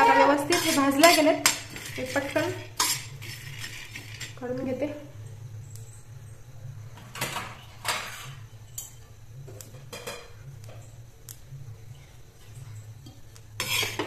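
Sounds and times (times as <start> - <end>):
metal spatula scraping peanuts: 0.0 - 4.8, 7.9 - 9.0, 12.4 - 14.0.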